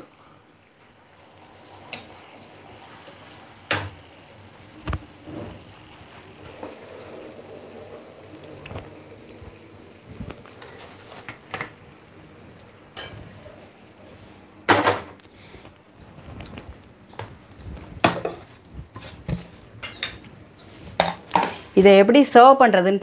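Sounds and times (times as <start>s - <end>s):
dishes and utensils clinking: 13.0s - 13.4s, 16.0s - 21.7s.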